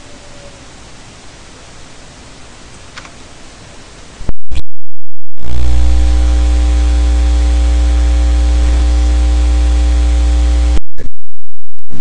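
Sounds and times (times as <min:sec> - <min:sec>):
loud electrical buzz with hum: 0:04.2 - 0:12.0.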